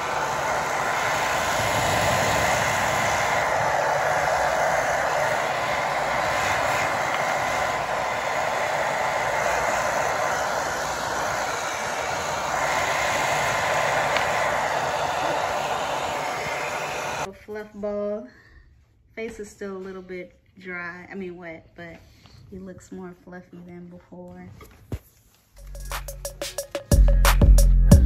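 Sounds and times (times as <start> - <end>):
hair dryer blowing: 0.0 - 17.3.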